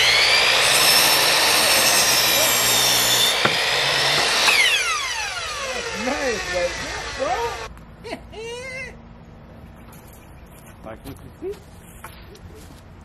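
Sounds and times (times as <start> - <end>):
miter saw cutting wood: 0.0 - 7.7.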